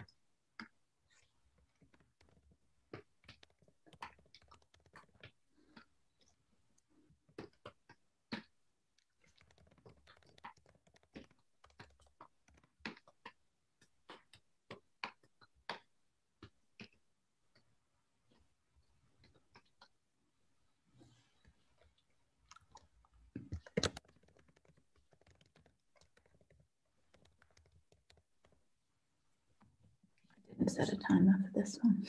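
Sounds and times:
faint typing on keyboard: 0:00.0 - 0:20.0, 0:21.4 - 0:28.7.

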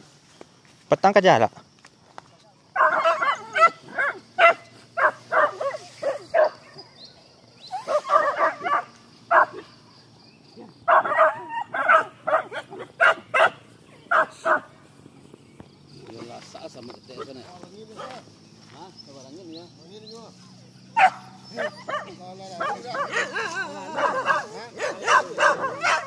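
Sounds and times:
high insect drone: 0:00.0 - 0:26.0
dogs barking: 0:02.7 - 0:07.0, 0:07.7 - 0:09.9, 0:10.6 - 0:14.8, 0:17.1 - 0:18.3, 0:20.6 - 0:26.0.

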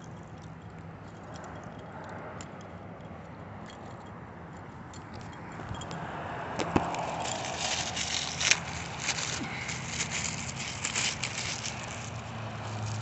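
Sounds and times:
phone handling rustling: 0:03.7 - 0:06.0, 0:06.6 - 0:13.0.

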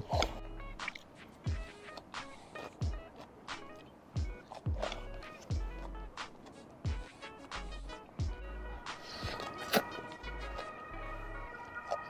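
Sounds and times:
background music with pulsing bass: 0:00.0 - 0:02.0, 0:04.2 - 0:06.2, 0:06.8 - 0:12.0.

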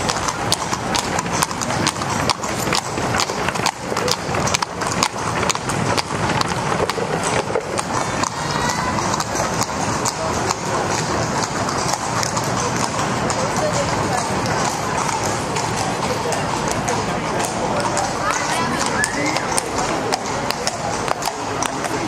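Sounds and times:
crowd chatter: 0:00.0 - 0:22.0
horse hooves on cobbles: 0:00.0 - 0:22.0.

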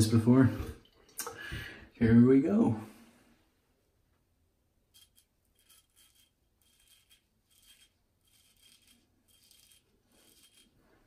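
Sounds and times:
axe blade scraping beard: 0:05.0 - 0:11.0.

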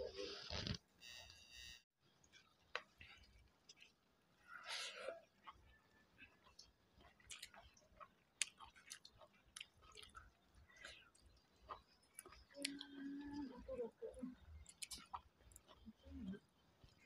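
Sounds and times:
chewing and lip smacks: 0:02.3 - 0:17.0.

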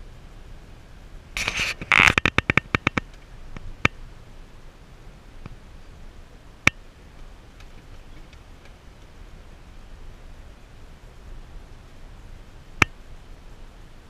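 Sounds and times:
vehicle rumbling on dirt road: 0:00.0 - 0:14.0
sharp ticks and knocks: 0:01.4 - 0:04.0.

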